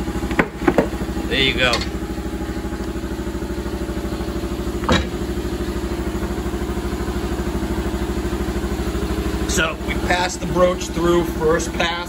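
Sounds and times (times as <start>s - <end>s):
air compressor running: 0.0s - 12.0s.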